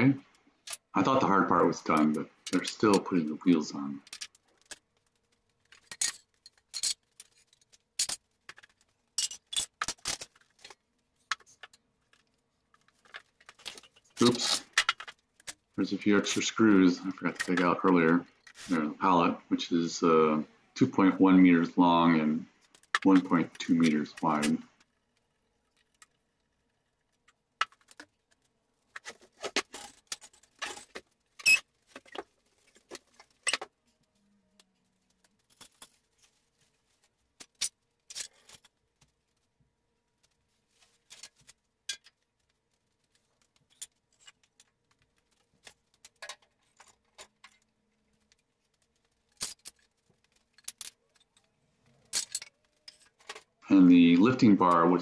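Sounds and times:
clinks and knocks of tools: 4.0s - 16.4s, 27.0s - 36.5s, 37.4s - 39.4s, 40.7s - 53.6s.

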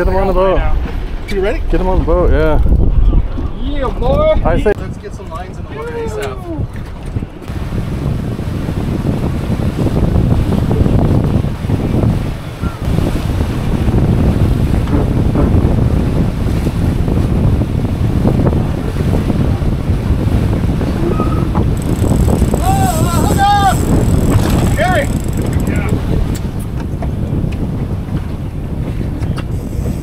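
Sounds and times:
wind buffeting microphone: 0.0s - 30.0s
outboard motors running: 3.4s - 27.6s
water rushing from wake: 3.6s - 28.8s.

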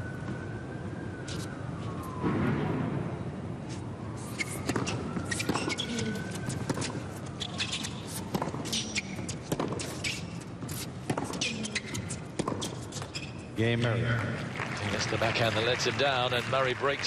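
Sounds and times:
siren wailing: 0.0s - 9.6s
tennis ball hits: 6.4s - 11.4s, 12.3s - 13.0s.

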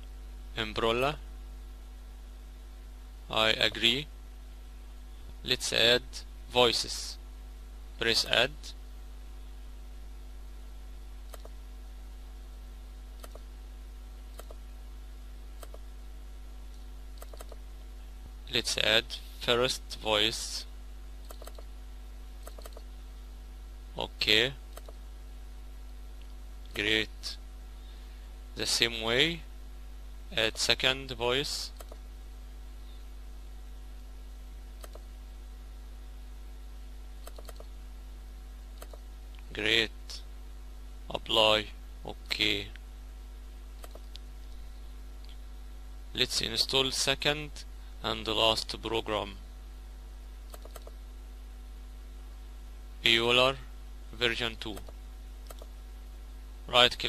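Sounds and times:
steady low hum: 0.0s - 57.0s
computer mouse clicking: 11.3s - 11.6s, 13.2s - 13.5s, 14.3s - 14.6s, 15.6s - 15.9s, 16.7s - 17.6s, 21.2s - 21.7s, 22.4s - 22.9s, 24.7s - 25.0s, 31.7s - 32.0s, 34.8s - 35.1s, 37.2s - 37.7s, 38.8s - 39.0s, 43.8s - 44.2s, 50.5s - 51.0s, 54.7s - 55.7s.

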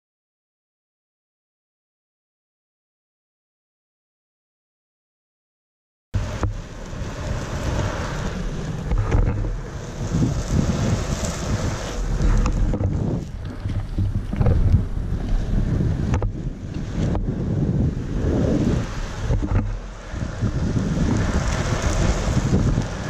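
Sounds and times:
skateboard wheels rumbling on asphalt: 6.2s - 23.0s
wind buffeting microphone: 6.2s - 23.0s.

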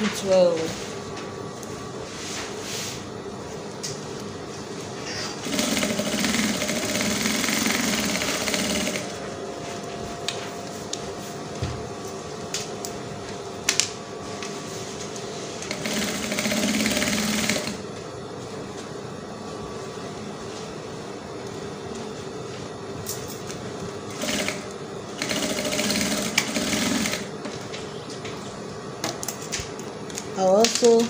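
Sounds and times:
sewing machine stitching: 5.4s - 9.1s, 15.7s - 17.8s, 24.1s - 24.6s, 25.2s - 27.3s.

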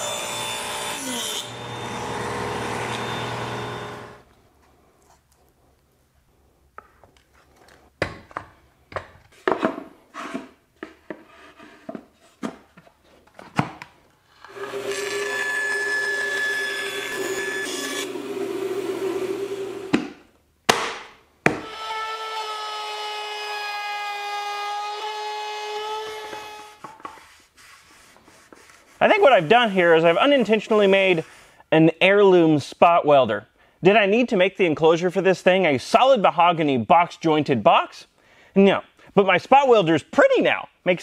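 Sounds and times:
band saw cutting wood: 0.0s - 4.2s, 14.4s - 20.0s, 29.0s - 31.4s.

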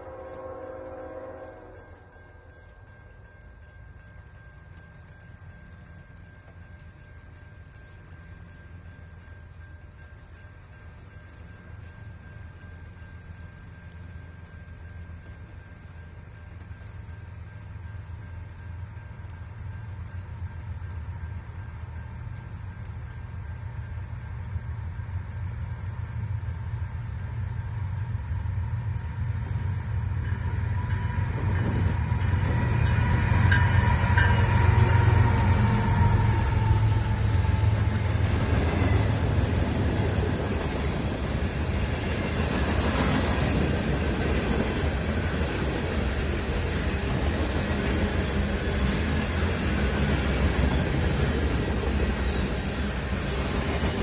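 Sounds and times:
diesel locomotives passing: 0.0s - 54.0s
wheels rolling on rails: 28.4s - 54.0s
train wheel screech: 30.8s - 39.2s.

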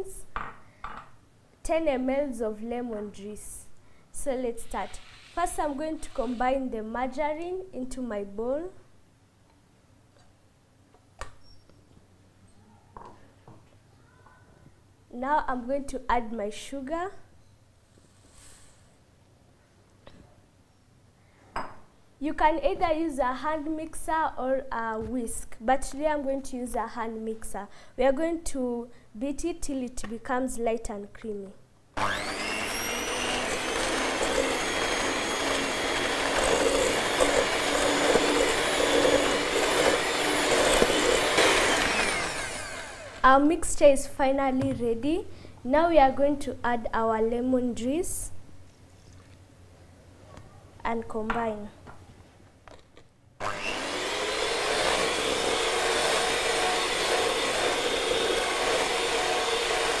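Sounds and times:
electric hand mixer whirring: 32.0s - 43.2s, 53.4s - 60.0s.

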